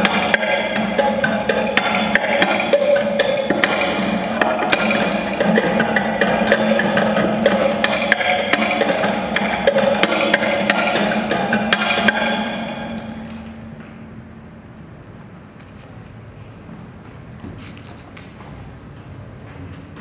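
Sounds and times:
guitar strings tapped percussively: 0.0s - 13.4s.

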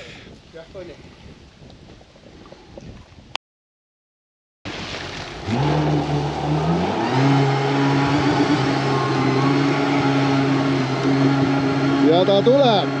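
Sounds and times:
boat engine revving: 4.7s - 13.0s.

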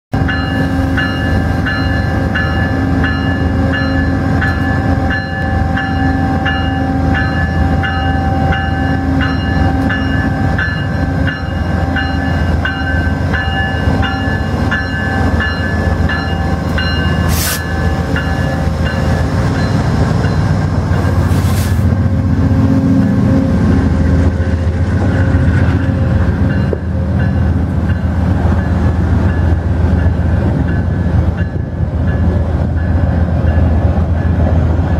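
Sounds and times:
diesel locomotive engine under load: 0.1s - 34.9s
train coaches rolling past: 0.2s - 34.9s
short hisses: 17.3s - 17.7s, 21.3s - 21.9s.

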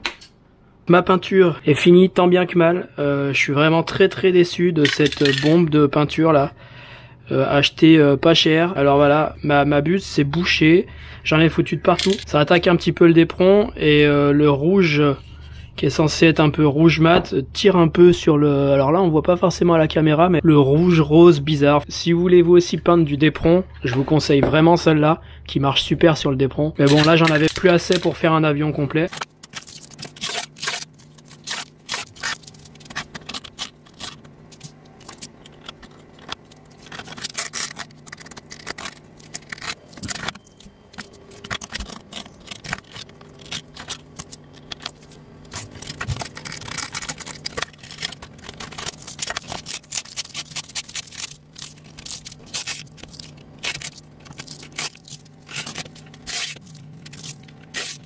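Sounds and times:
scraping and crackling: 29.0s - 58.0s
tape being peeled off foam: 29.2s - 58.0s.

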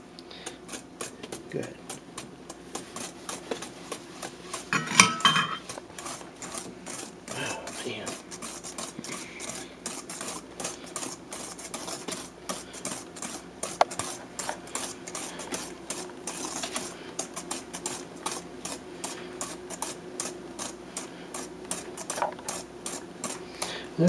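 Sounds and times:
whisk beating in metal bowl: 0.4s - 24.0s
whisk clinking on bowl: 4.7s - 5.8s.

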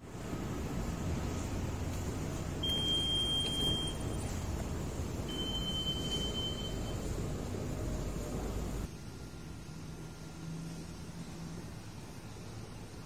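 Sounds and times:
long electronic beeps: 2.6s - 4.3s, 5.3s - 7.1s.

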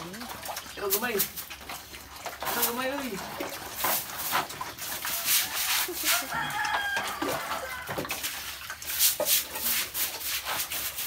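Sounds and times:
broom scrubbing wet concrete: 0.0s - 11.0s
rooster crowing: 5.1s - 8.0s.

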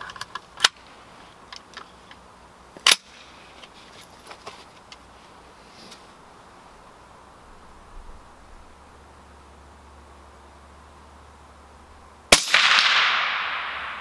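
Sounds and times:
suppressed rifle shot: 12.3s - 14.0s.

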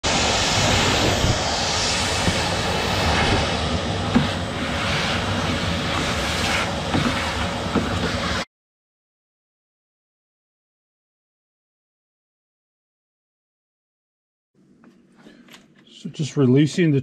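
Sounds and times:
shop vacuum running: 0.0s - 8.5s.

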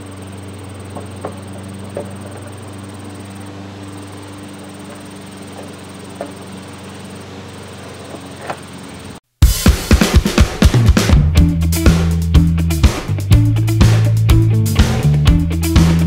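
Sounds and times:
steady low hum: 0.0s - 9.2s.

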